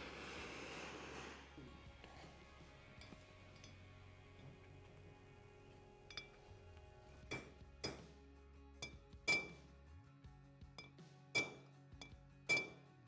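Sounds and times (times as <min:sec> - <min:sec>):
hammer tapping metal: 0:07.2 - 0:08.1, 0:08.8 - 0:09.6, 0:10.8 - 0:12.8.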